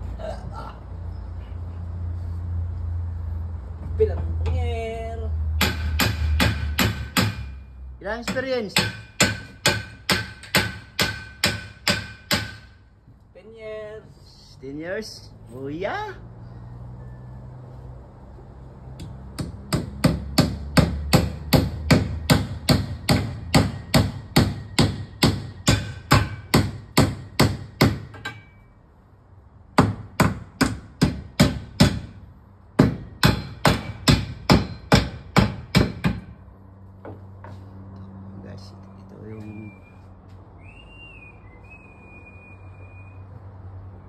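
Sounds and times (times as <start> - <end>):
hammer nailing timber: 5.6 - 7.6, 8.2 - 12.8, 19.0 - 28.5, 29.7 - 32.2, 32.8 - 36.4.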